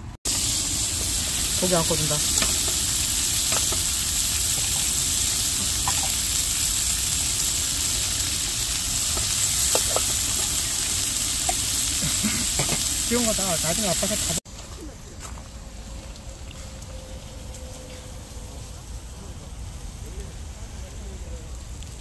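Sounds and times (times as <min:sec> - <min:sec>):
meat sizzling on griddle pan: 0:00.3 - 0:14.4.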